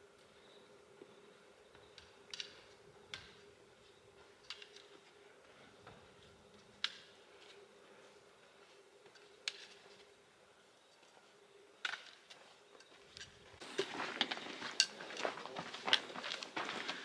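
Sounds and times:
footsteps on gravel: 0:13.6 - 0:17.0.

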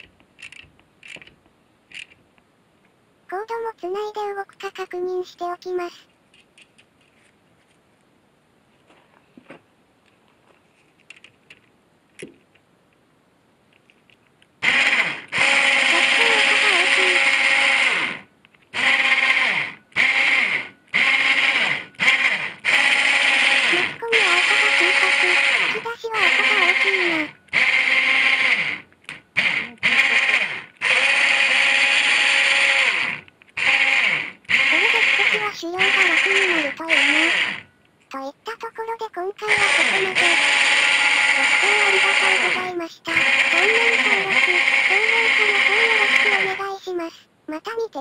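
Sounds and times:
winch motor whirring whine: 0:14.6 - 0:37.7, 0:39.6 - 0:42.5, 0:43.2 - 0:46.5.

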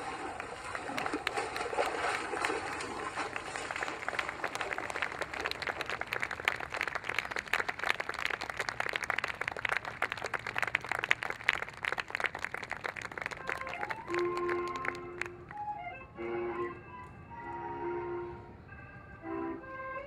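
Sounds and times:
audience applauding: 0:00.0 - 0:15.7
steady musical notes: 0:13.4 - 0:20.0.

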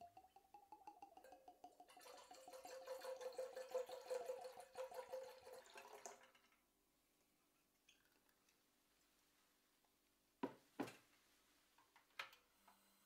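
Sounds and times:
liquid glugging into metal pitcher: 0:00.0 - 0:06.6.

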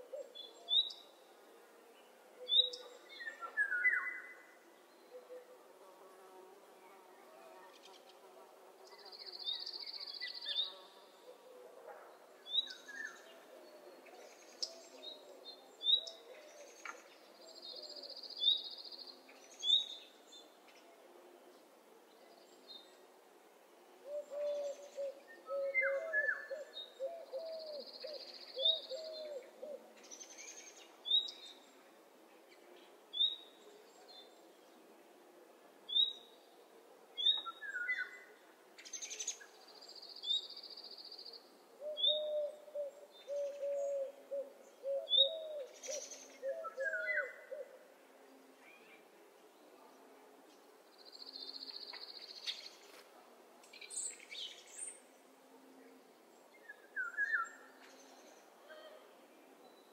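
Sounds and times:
low repeated bird calls: 0:40.7 - 0:47.8.

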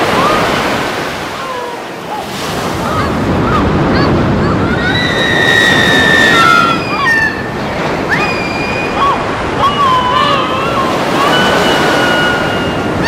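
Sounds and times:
surf on pebble beach: 0:00.0 - 0:13.0
long steady whistle: 0:11.3 - 0:12.9.

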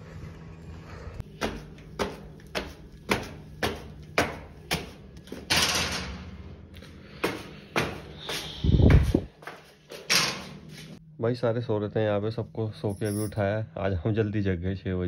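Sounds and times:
flip-flop footsteps on concrete stairs: 0:01.2 - 0:05.6, 0:06.8 - 0:11.0.

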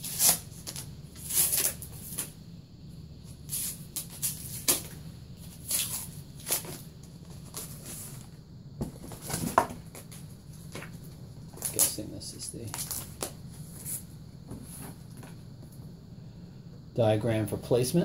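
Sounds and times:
cardboard rustling and scraping: 0:03.5 - 0:15.4.

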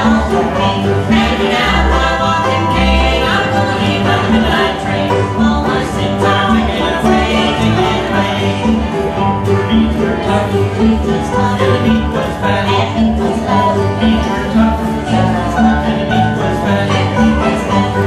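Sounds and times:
acoustic guitar picking: 0:00.0 - 0:18.0
banjo: 0:00.0 - 0:18.0
mandolin: 0:00.0 - 0:18.0
people singing: 0:00.0 - 0:18.0
upright bass: 0:00.0 - 0:18.0.

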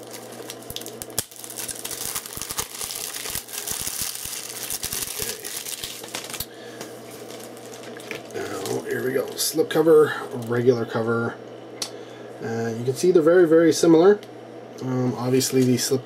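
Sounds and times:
plastic wrapping crinkling: 0:00.0 - 0:09.4.

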